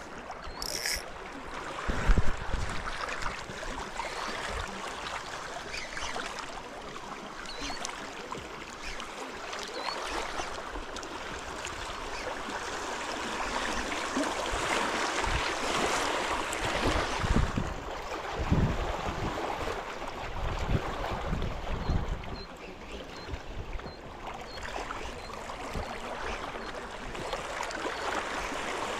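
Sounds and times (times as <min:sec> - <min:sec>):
small waves lapping: 0:00.0 - 0:28.9
wind buffeting microphone: 0:16.6 - 0:22.5.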